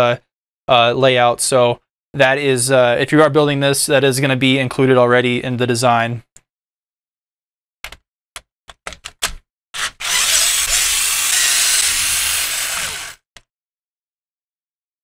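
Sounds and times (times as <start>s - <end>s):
cordless screwdriver driving a bolt: 9.8s - 13.2s.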